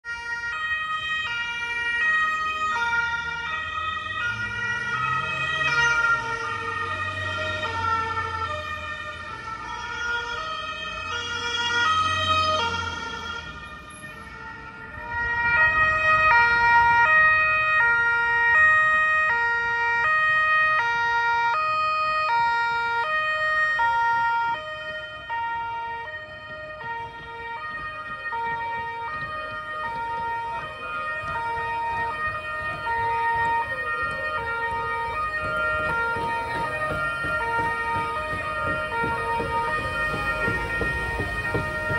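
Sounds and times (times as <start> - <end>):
two-tone police siren: 0.0 - 41.9
road traffic rumbling: 0.1 - 41.9.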